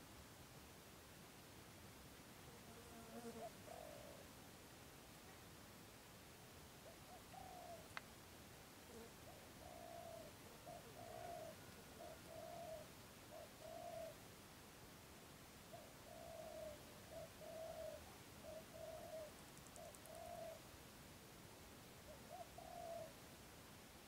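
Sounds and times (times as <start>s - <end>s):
dove cooing faintly: 2.6s - 4.4s, 6.7s - 8.1s, 8.8s - 14.3s, 15.6s - 20.8s, 21.9s - 23.4s.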